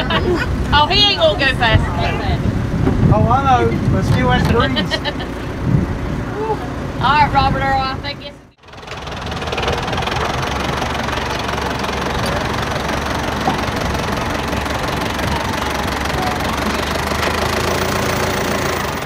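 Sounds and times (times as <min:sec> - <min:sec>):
car engine idling: 0:00.0 - 0:19.0.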